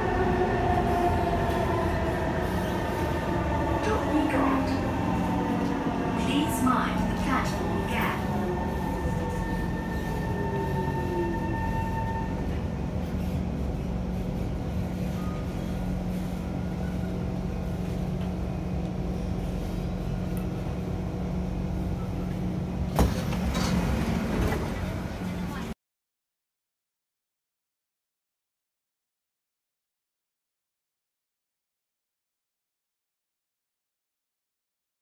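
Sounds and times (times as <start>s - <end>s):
standing train humming: 0.0s - 25.6s
train doors clunking open: 22.9s - 25.3s.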